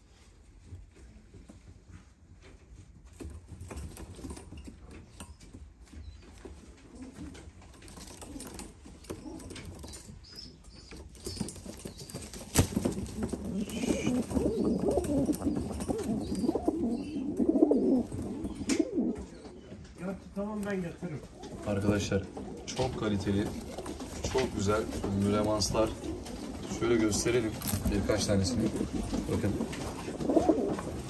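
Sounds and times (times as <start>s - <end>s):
pigeons cooing: 5.1s - 20.4s, 21.0s - 31.0s.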